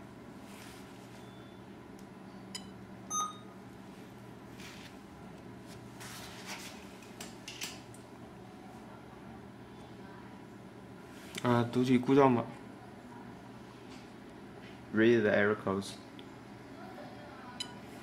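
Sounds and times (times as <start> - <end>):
faint steady hum: 0.0 - 18.0
short electronic beep: 3.1 - 3.5.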